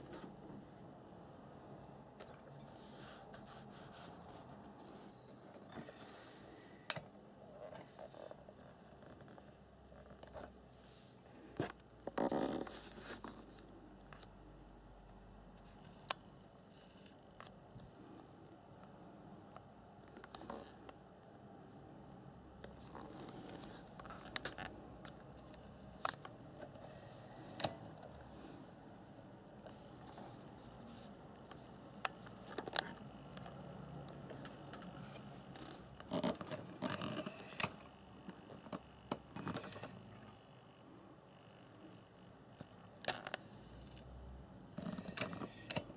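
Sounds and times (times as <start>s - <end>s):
rustling and scraping: 1.8s - 6.7s, 7.5s - 13.7s.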